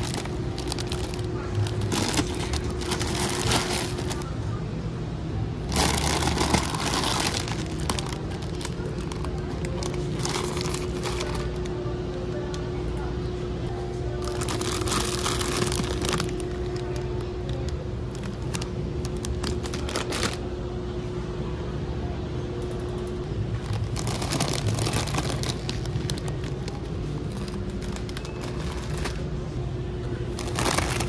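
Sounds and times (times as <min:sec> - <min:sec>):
plastic snack bags crinkling: 0:00.0 - 0:04.3, 0:05.7 - 0:11.8, 0:14.2 - 0:20.4, 0:23.6 - 0:29.3, 0:30.3 - 0:31.0.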